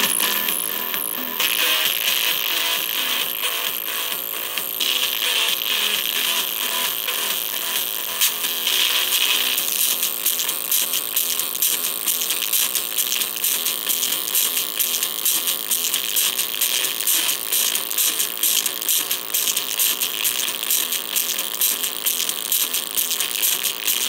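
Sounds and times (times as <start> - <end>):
distorted speaker crackling: 0.0 - 13.4.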